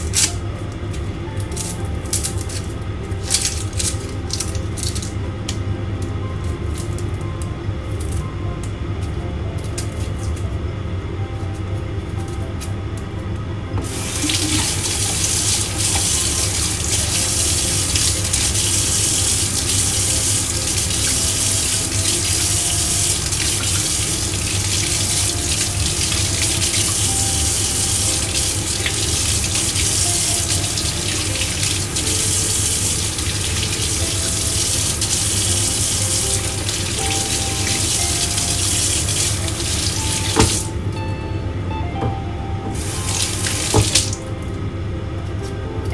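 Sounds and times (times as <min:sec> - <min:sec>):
tap running into a sink: 0:13.8 - 0:40.7, 0:42.0 - 0:44.2.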